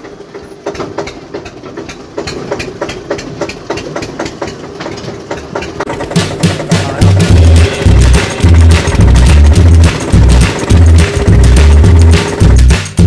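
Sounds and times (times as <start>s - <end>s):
tractor diesel engine running: 0.0s - 13.0s
music with heavy bass beat: 5.9s - 13.0s.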